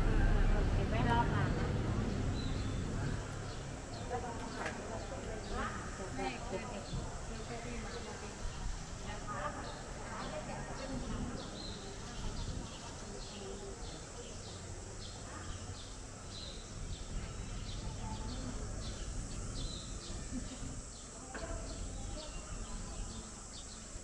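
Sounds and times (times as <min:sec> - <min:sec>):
low outdoor rumble: 0:00.0 - 0:06.4
small birds chirping: 0:00.9 - 0:24.0.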